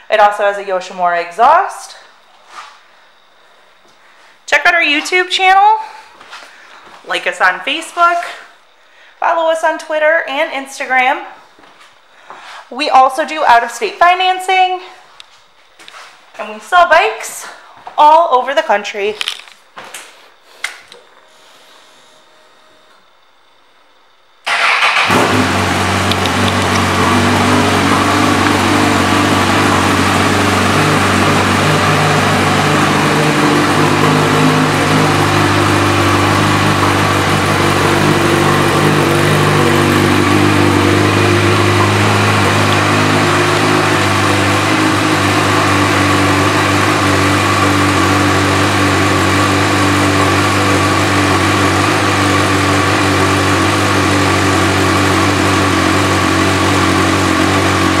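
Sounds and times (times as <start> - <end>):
motorcycle engine idling: 24.6 - 46.3.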